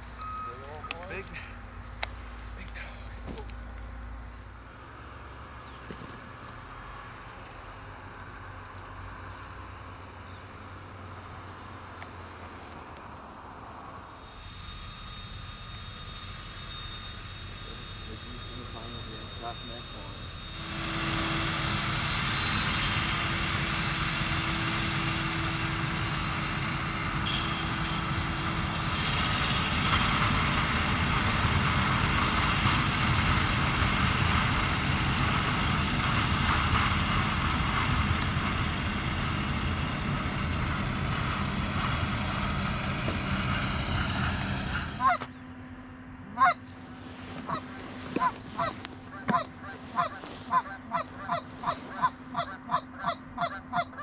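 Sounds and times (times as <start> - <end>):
forage harvester running: 0.0 - 54.0
goose honks: 45.0 - 45.3, 46.3 - 46.7, 47.4 - 54.0.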